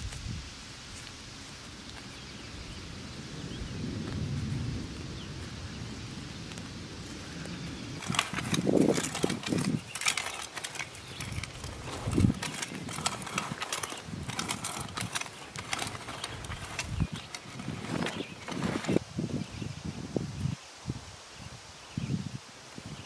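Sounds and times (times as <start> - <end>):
weeds rustling as pulled by hand: 6.4 - 19.1.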